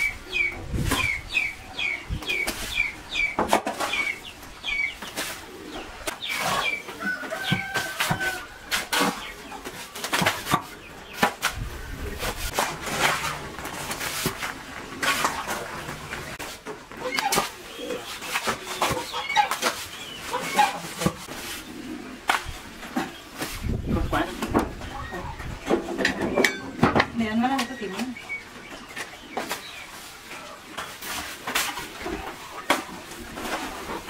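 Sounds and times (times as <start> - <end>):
chickens clucking: 0.0 - 34.0
sharp knocks and rustles: 2.4 - 4.2, 5.0 - 21.6.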